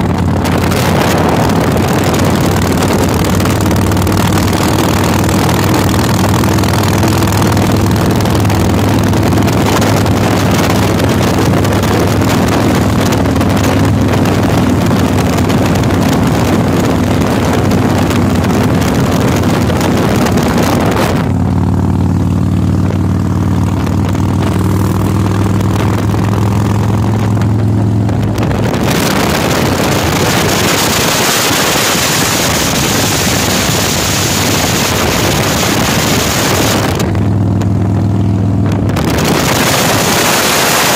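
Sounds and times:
motorcycle engine running: 0:00.0 - 0:40.9
wind rushing over microphone: 0:00.0 - 0:40.9.

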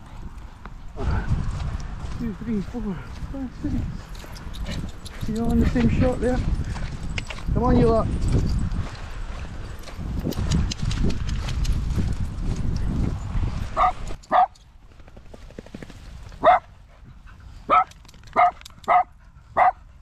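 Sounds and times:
low rumbling clicking noise: 0:10.2 - 0:12.9
small dog barking: 0:13.8 - 0:14.6, 0:16.4 - 0:16.7, 0:17.7 - 0:19.8.

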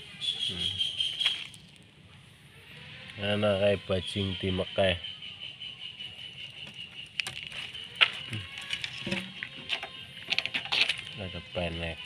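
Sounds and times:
high-pitched drone: 0:02.7 - 0:12.0.

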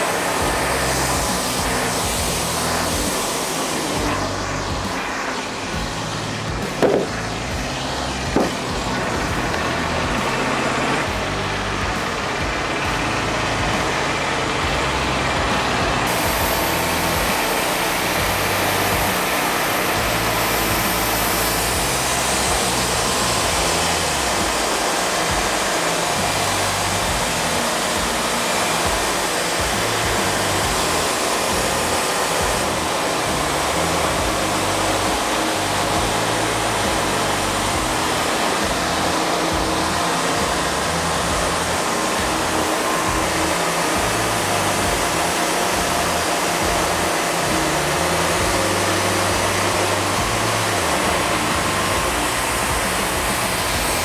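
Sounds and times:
background music: 0:00.0 - 0:54.0
band sawmill sawing log: 0:00.0 - 0:54.0
bright hiss: 0:00.0 - 0:54.0
wooden knocks: 0:06.8 - 0:07.1, 0:08.3 - 0:08.6.

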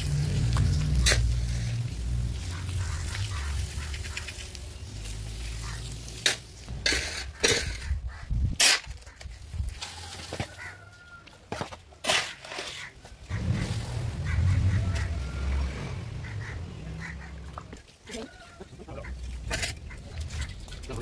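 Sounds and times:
low rumble: 0:00.0 - 0:05.8, 0:13.3 - 0:17.7
trowel scraping and knocking: 0:06.2 - 0:10.6, 0:11.5 - 0:12.9.

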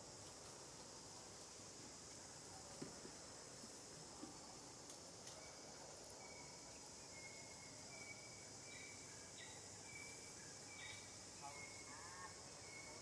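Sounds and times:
high insect drone: 0:00.0 - 0:13.0
thin bird calls: 0:06.2 - 0:12.0.

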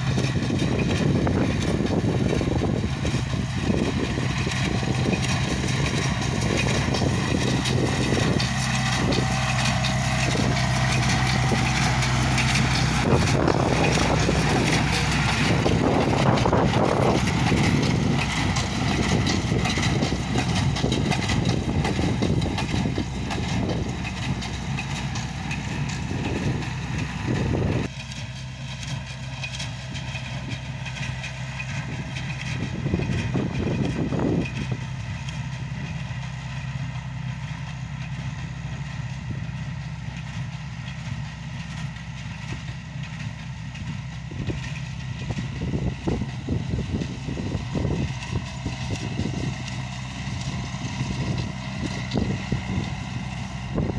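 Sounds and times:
hay baler clattering: 0:00.0 - 0:53.9
tractor diesel engine running: 0:00.0 - 0:53.9.

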